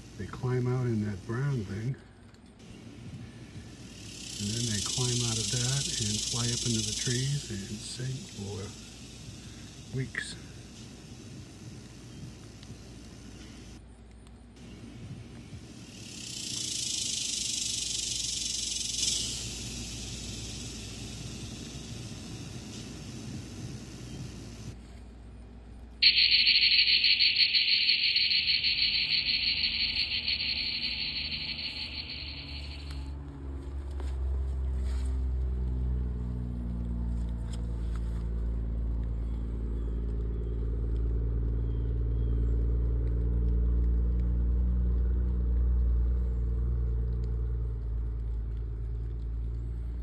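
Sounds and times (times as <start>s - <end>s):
cicada buzzing: 3.5s - 13.8s, 15.5s - 24.8s, 26.0s - 33.1s
truck engine rumble: 17.5s - 50.0s.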